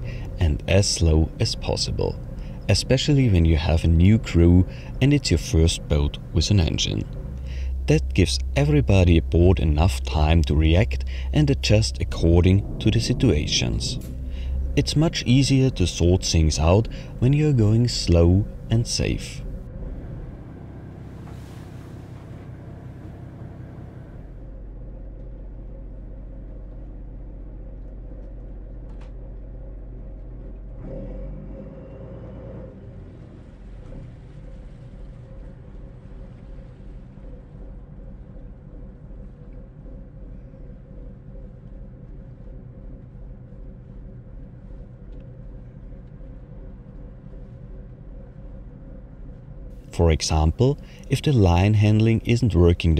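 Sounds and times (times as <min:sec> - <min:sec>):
boat engine rumbling: 0:00.0 - 0:52.9.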